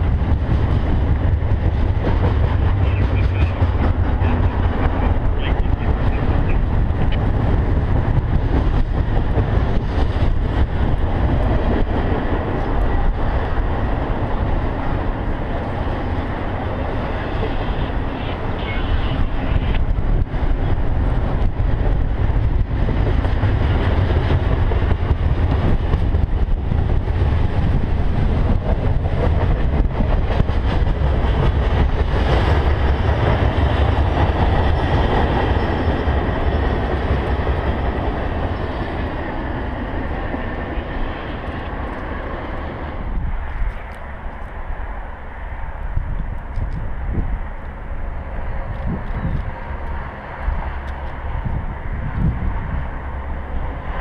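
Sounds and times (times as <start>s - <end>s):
steel wheels rumbling on rail: 0.0s - 54.0s
scattered clicks: 45.8s - 46.9s.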